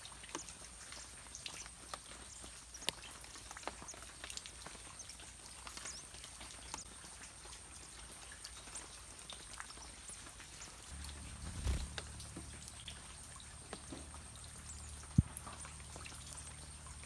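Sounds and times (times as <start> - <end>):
soft ticks: 2.8 - 4.4.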